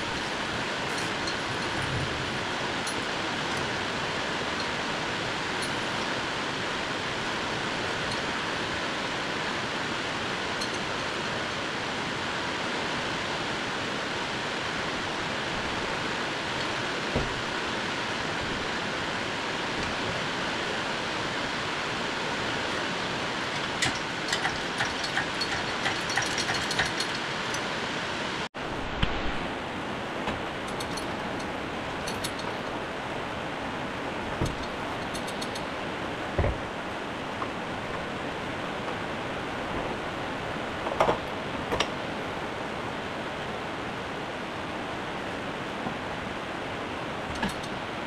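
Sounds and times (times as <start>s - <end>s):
metallic chain clicks and rattles: 0.0s - 3.7s, 5.6s - 6.1s, 10.6s - 11.4s, 23.5s - 27.7s, 30.7s - 32.7s, 34.4s - 35.7s, 47.4s - 47.8s.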